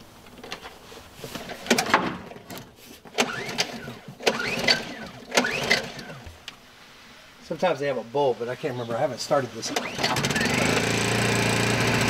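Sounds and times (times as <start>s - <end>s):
generator recoil starter pulls: 0.3s - 6.3s, 9.6s - 12.0s
engine turning over whir: 1.4s - 6.4s, 9.6s - 12.0s.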